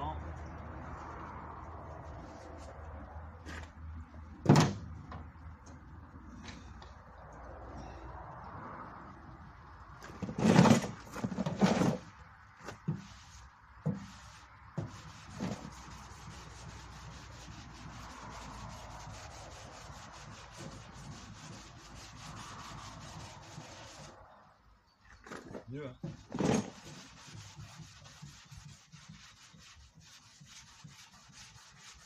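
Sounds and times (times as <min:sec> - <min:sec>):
sandpaper rubbing on metal: 0:12.9 - 0:24.2, 0:26.4 - 0:32.0.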